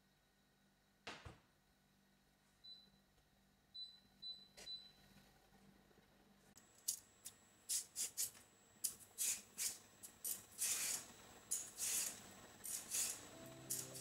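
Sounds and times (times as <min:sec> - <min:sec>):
peeler scraping potato: 0:07.7 - 0:14.0.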